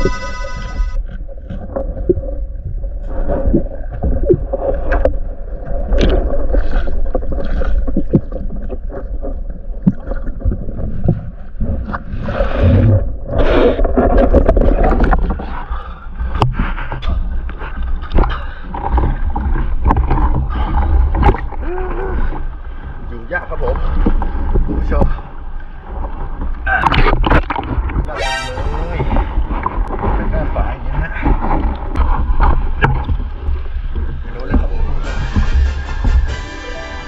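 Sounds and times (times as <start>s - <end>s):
water splashing: 0.0s - 15.6s
underwater gurgling and rushing: 0.0s - 37.0s.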